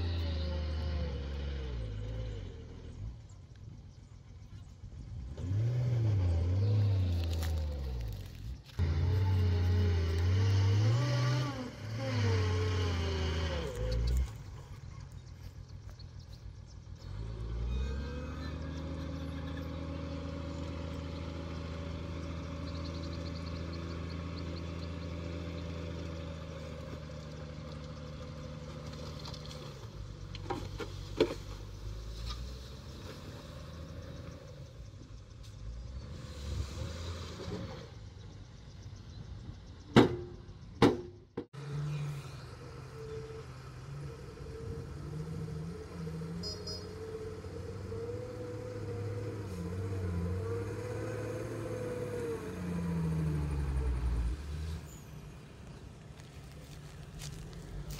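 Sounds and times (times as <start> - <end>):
diesel truck engine revving: 0.0 - 3.4, 5.2 - 15.8, 16.8 - 39.9, 41.4 - 57.9
soil sliding out: 6.0 - 14.8.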